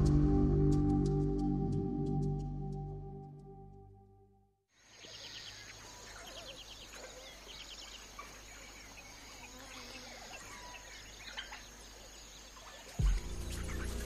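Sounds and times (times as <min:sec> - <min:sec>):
birds chirping and trilling: 0:04.8 - 0:14.0.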